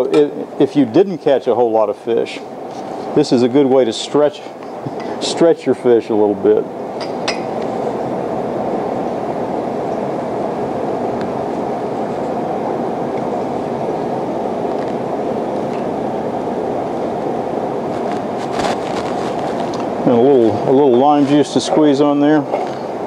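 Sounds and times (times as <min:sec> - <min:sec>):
ventilation fans rushing: 0:00.0 - 0:23.0.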